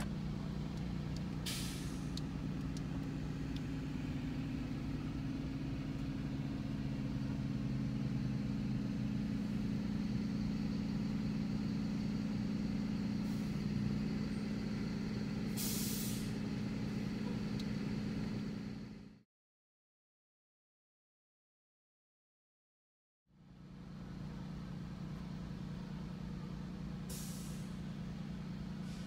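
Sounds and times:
buses idling: 0.0 - 19.2, 23.4 - 29.0
car engine idling: 0.0 - 19.2, 23.4 - 29.0
air brake hiss: 1.4 - 2.2, 13.2 - 13.6, 15.5 - 16.4, 27.0 - 27.9, 28.8 - 29.0.

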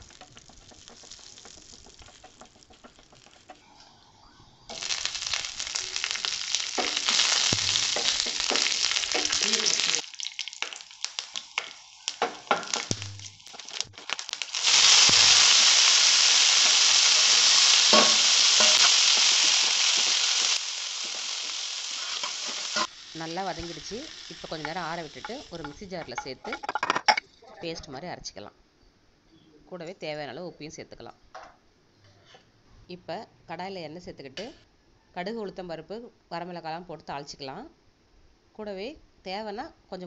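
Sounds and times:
oil sizzling in frying pan: 0.0 - 3.7, 4.7 - 26.6.

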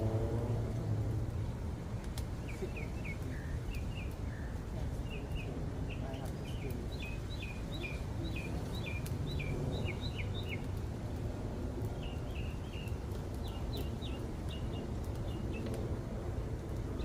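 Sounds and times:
low outdoor background noise: 0.0 - 17.0
small bird chirping: 2.4 - 10.7, 11.9 - 15.7.

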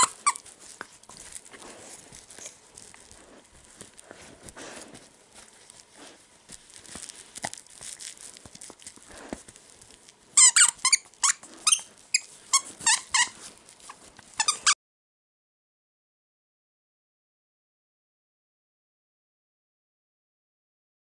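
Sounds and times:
toy squeaker squeaking: 0.0 - 0.4, 10.4 - 13.4, 14.4 - 14.8
blanket rustling: 0.0 - 14.5
dog chewing toy: 0.0 - 14.7.

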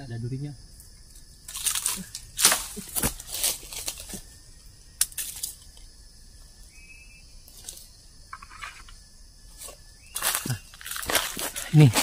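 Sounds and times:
machete chopping stems: 1.5 - 4.2
plant rustling and snapping: 1.5 - 4.2, 5.0 - 5.9, 10.2 - 12.0.

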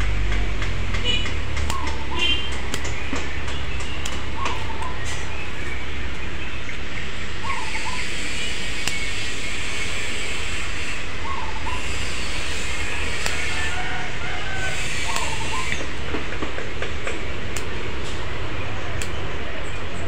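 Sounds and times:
pruning scissors snipping twigs: 0.0 - 6.3, 8.1 - 9.3, 11.8 - 18.3, 18.9 - 19.3
rumbling background noise: 0.0 - 20.0.

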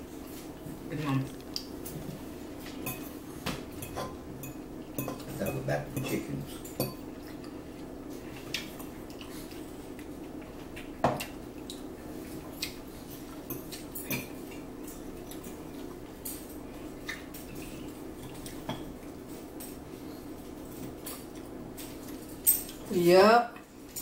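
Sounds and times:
low steady hum: 0.0 - 24.0
forks clinking on bowls: 2.7 - 3.2, 3.8 - 7.6, 13.4 - 15.6, 21.8 - 22.9.

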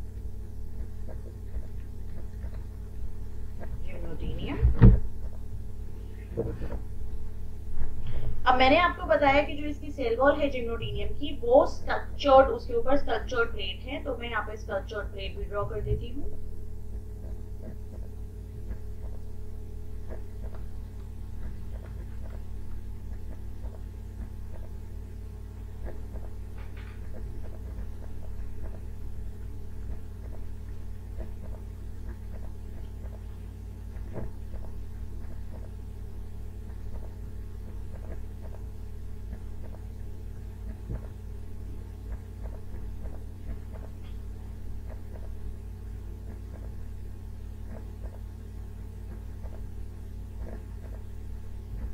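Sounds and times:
low electrical hum: 0.0 - 51.9
stylus tapping and drawing on tablet: 21.4 - 24.8, 27.1 - 28.9, 29.8 - 30.5, 31.2 - 33.4, 42.1 - 44.2, 44.8 - 45.4, 49.1 - 49.7.

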